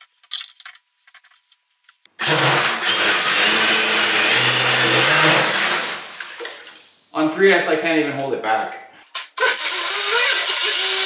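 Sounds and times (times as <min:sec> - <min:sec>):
high motor whine: 0:02.2 - 0:06.2.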